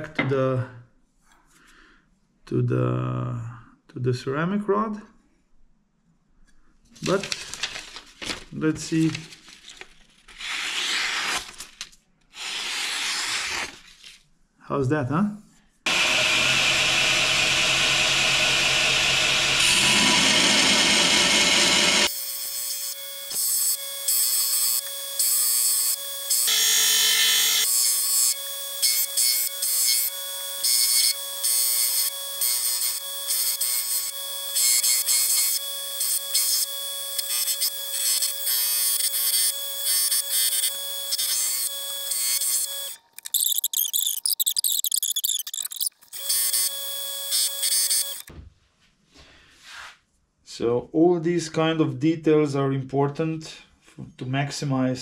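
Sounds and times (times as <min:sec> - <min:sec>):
belt grinder running: 0:15.9 - 0:48.3.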